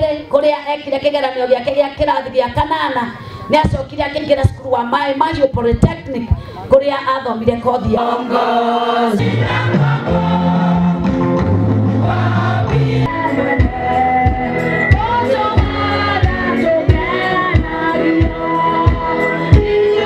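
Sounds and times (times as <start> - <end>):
women's choir singing gospel: 7.6 - 20.0
steady beat: 9.1 - 20.0
low bass line: 9.2 - 18.3.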